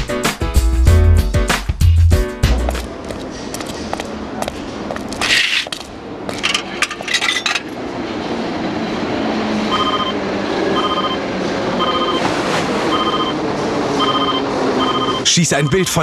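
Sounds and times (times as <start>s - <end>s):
steady background noise: 2.3s - 16.0s
electronic beeps: 11.8s - 12.2s, 12.9s - 13.4s, 14.0s - 16.0s.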